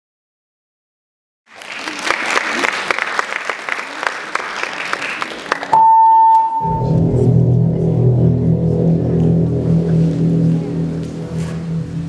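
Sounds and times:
audience applauding: 1.5s - 5.8s
music with sustained tones: 6.6s - 12.0s.

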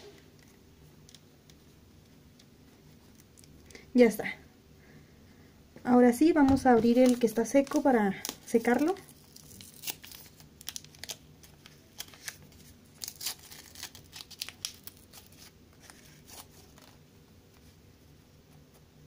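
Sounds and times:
wipe packet being torn open: 7.0s - 17.0s.

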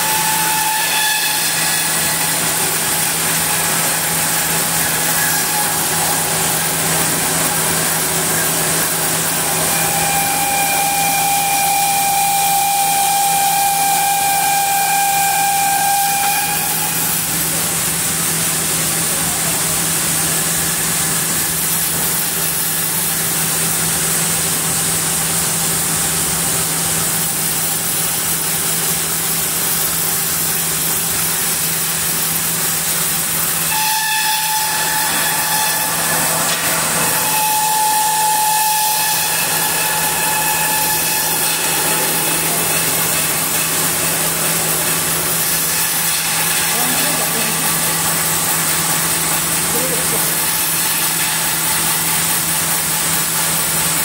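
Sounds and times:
band saw cutting log: 0.0s - 54.0s
high steady whine: 34.4s - 50.5s.

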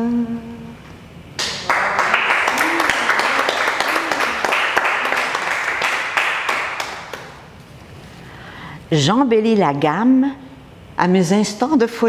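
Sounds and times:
audience applauding: 1.4s - 7.5s.

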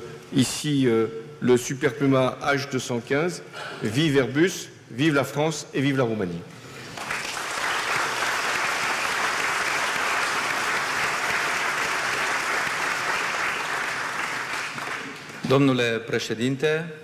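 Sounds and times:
audience applauding: 6.9s - 15.6s.

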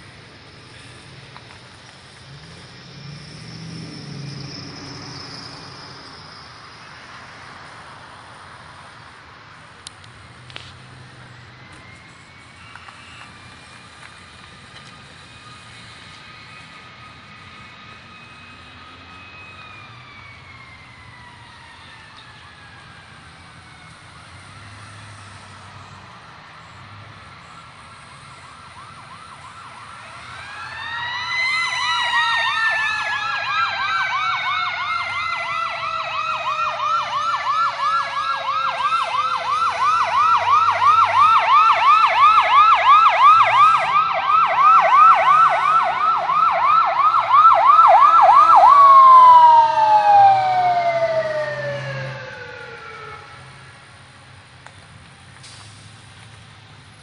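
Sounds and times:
fire truck siren wailing: 0.0s - 56.0s
fast siren yelp: 2.4s - 7.2s, 15.3s - 25.2s, 27.4s - 53.5s.

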